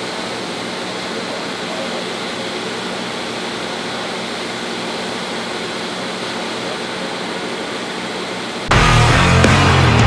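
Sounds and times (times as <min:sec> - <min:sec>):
welding arc hissing: 0:00.0 - 0:10.0
low hum: 0:08.7 - 0:10.0.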